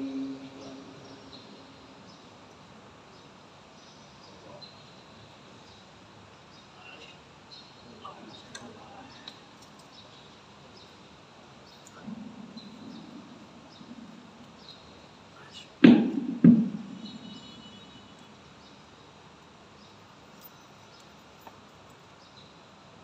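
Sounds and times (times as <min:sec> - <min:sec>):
low hum of hall: 0:00.0 - 0:23.0
loud echoing thumps: 0:12.0 - 0:14.4, 0:15.8 - 0:17.4.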